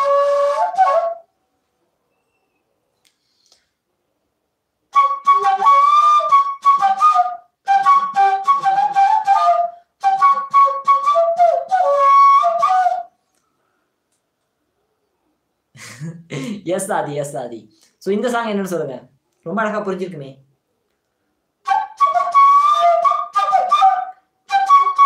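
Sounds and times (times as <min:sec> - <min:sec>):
flute melody: 0:00.0 - 0:01.4, 0:04.9 - 0:13.2, 0:21.6 - 0:25.0.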